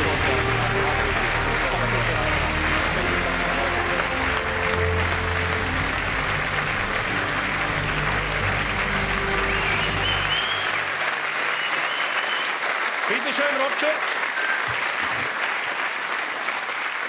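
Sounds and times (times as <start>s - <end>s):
background music: 0.0s - 11.7s
audience applauding: 0.0s - 17.0s.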